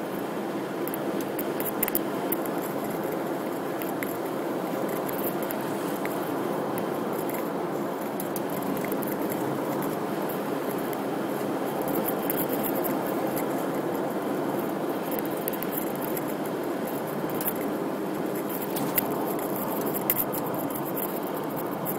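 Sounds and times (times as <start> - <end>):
car road and engine noise: 0.0 - 21.9.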